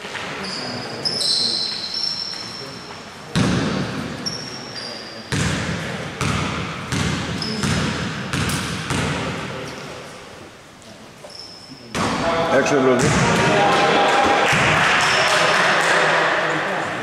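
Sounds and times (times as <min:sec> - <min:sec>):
basketball bouncing on wooden floor: 0:05.3 - 0:09.3.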